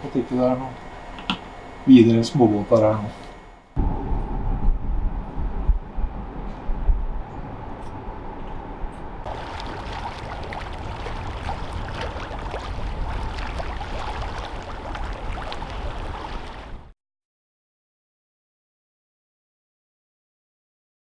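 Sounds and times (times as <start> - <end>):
low steady rumble: 0.0 - 16.9
water splashing and lapping: 9.2 - 16.9.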